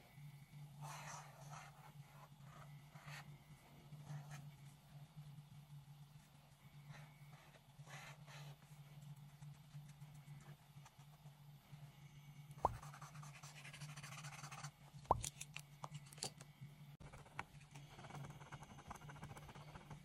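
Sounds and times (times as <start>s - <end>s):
low steady hum: 0.0s - 20.0s
marker scratching on paper: 12.6s - 14.7s.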